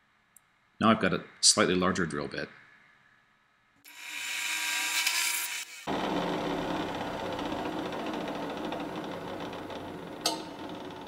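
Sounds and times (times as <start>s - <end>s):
drill bit cutting plastic: 3.9s - 11.0s
drill press humming: 5.8s - 11.0s.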